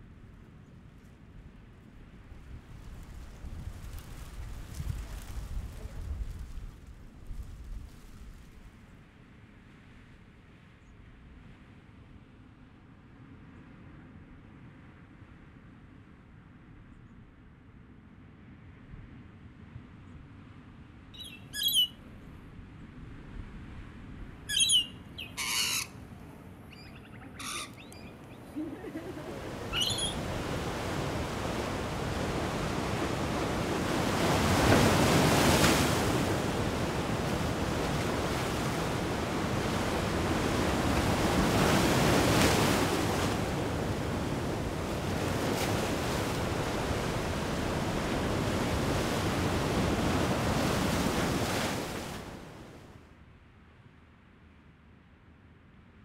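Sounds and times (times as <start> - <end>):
birds chirping and squawking: 21.2 - 21.9, 24.5 - 26.0, 26.7 - 30.3
ocean waves breaking: 24.5 - 52.8.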